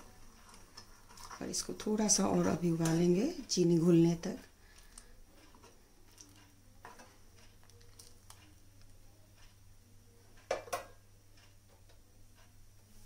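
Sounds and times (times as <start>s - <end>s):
ladle stirring in pan: 0.0s - 3.6s, 4.6s - 8.6s
metal knocks on pan: 10.5s - 11.0s.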